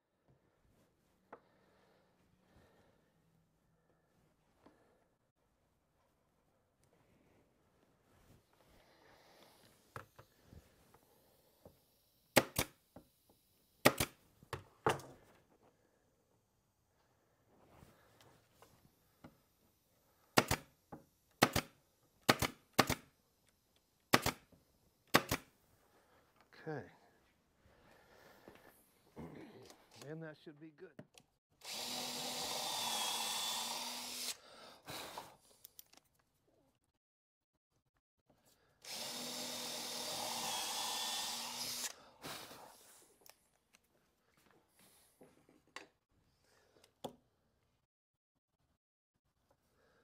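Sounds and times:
nail gun firing double clack: 21.4 - 21.7, 22.3 - 23.0, 24.1 - 24.4, 25.1 - 25.5
power drill running: 31.6 - 34.4, 38.8 - 42.0.

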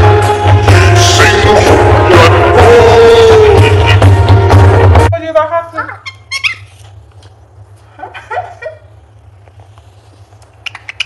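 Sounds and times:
steady low hum: 0.0 - 10.7
budgerigar chirping: 5.8 - 6.8, 10.6 - 11.0
bird wavering call: 6.0 - 6.8.

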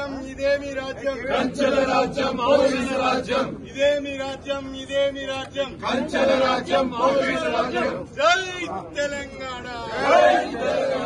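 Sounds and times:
men chanting in unison: 0.0 - 4.7, 5.6 - 8.1, 9.8 - 11.0.

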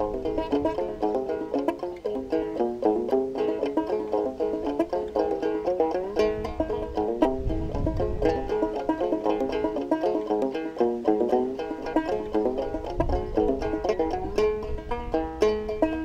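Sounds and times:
wind rumble on microphone: 0.0 - 1.6, 3.9 - 10.5, 11.2 - 16.0
banjo plucked notes: 0.0 - 16.0.

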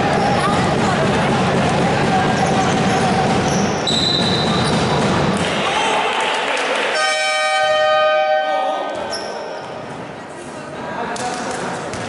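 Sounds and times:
crowd din: 0.0 - 7.2
referee whistle blast: 3.8 - 4.5.

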